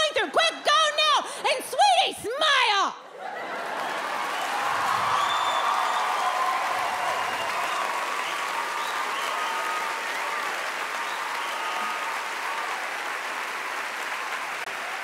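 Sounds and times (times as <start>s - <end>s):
audience applauding: 3.2s - 15.0s
audience cheering: 3.2s - 15.0s.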